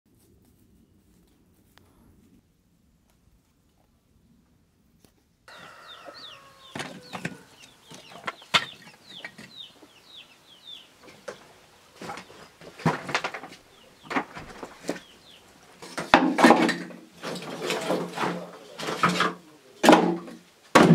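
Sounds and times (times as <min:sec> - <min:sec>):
birds chirping: 0:05.5 - 0:16.2, 0:16.8 - 0:20.6
sharp knocks: 0:19.0 - 0:20.9.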